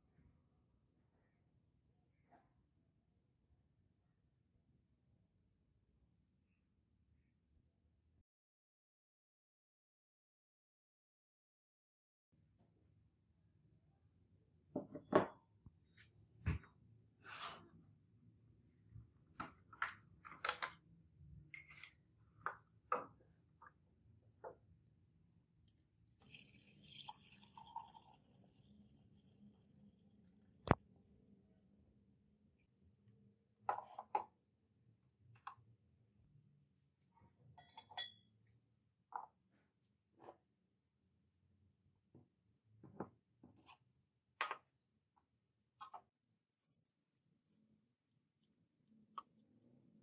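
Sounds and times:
glassware clinking on table: 0:37.6 - 0:38.2.

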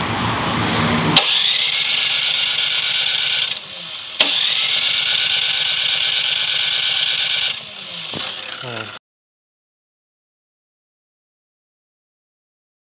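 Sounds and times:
snow blower engine pull-started: 0:01.2 - 0:09.0
snow blower engine running: 0:01.2 - 0:09.0.

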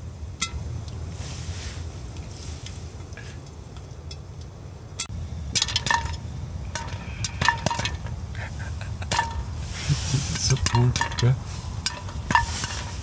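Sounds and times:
low steady rumble: 0:00.0 - 0:13.0
popcorn popping in metal pot: 0:05.5 - 0:08.1, 0:09.1 - 0:09.6, 0:10.4 - 0:13.0.

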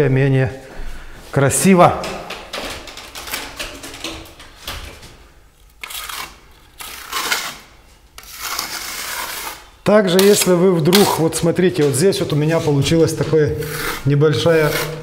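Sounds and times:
trowel scraping plaster: 0:05.8 - 0:10.4, 0:13.5 - 0:15.0.

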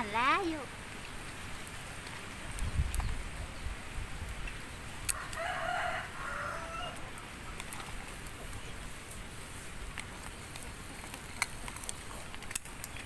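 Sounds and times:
rooster crowing: 0:05.1 - 0:07.1.

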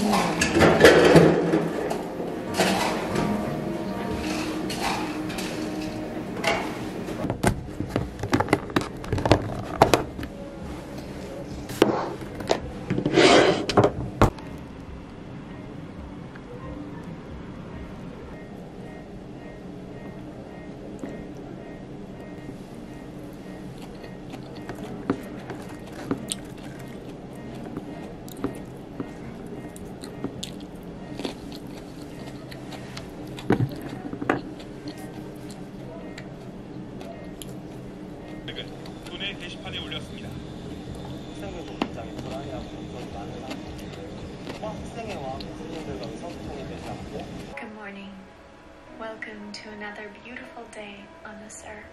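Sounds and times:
rustling scrape: 0:13.0 - 0:13.8
person chewing crunchy salad: 0:22.8 - 0:39.0, 0:42.1 - 0:47.5.

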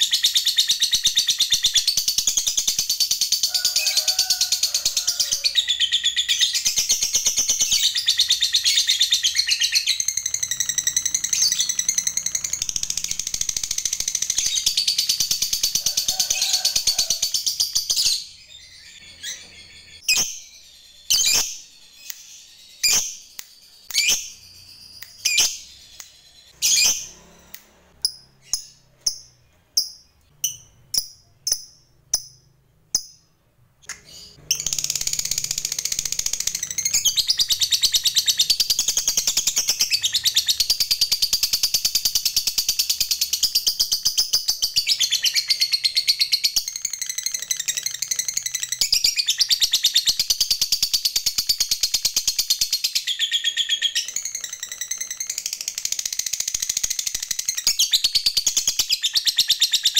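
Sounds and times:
lovebird chirping: 0:00.0 - 0:59.9
lovebird rapid chatter trill: 0:06.6 - 0:18.1, 0:34.4 - 0:59.9.

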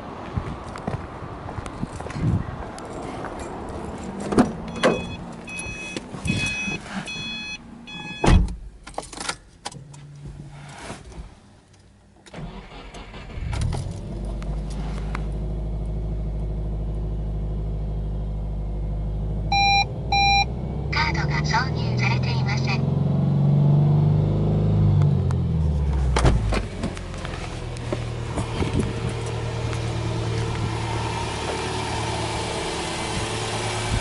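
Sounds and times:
car engine starting and idling: 0:02.8 - 0:34.0
car door clunks: 0:04.2 - 0:07.3, 0:08.0 - 0:08.7, 0:26.0 - 0:27.0
short beeps: 0:04.7 - 0:08.4, 0:19.5 - 0:20.5.

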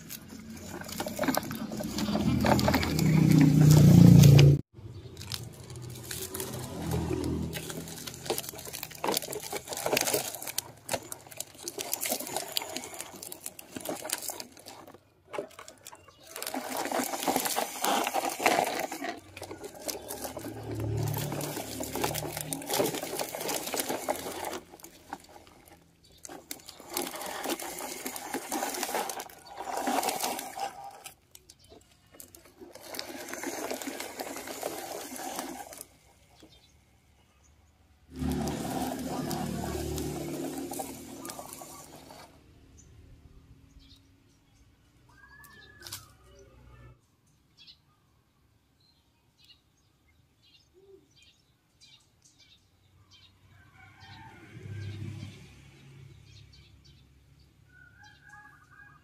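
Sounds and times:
toy truck wheels rattling and scraping: 0:00.0 - 0:36.8, 0:38.0 - 0:42.8, 0:45.4 - 0:46.9.

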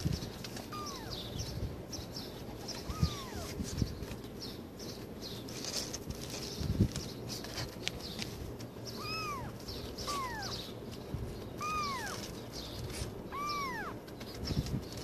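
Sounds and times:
kitten meowing: 0:00.6 - 0:01.3, 0:02.8 - 0:03.6, 0:08.9 - 0:10.6, 0:11.6 - 0:12.3, 0:13.3 - 0:14.0.

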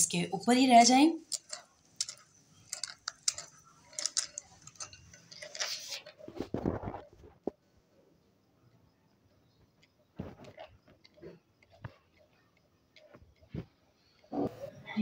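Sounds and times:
spatula scraping mesh strainer: 0:01.2 - 0:06.4.

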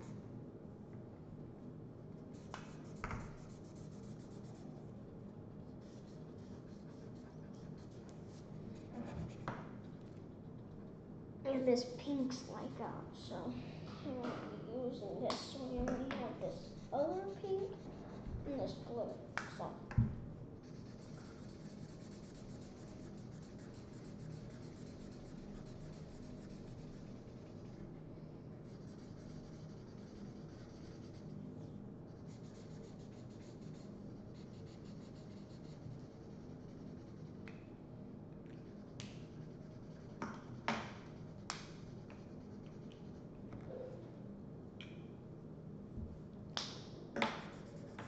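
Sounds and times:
markers scratching on paper: 0:02.3 - 0:04.8, 0:05.6 - 0:10.8, 0:15.4 - 0:19.7, 0:20.6 - 0:27.9, 0:28.6 - 0:31.4, 0:32.1 - 0:37.4, 0:38.5 - 0:43.3, 0:47.3 - 0:48.0.

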